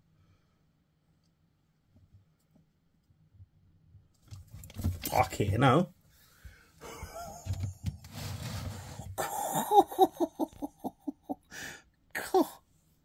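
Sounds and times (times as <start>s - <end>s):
man laughing: 6.8s - 8.0s, 9.2s - 12.6s.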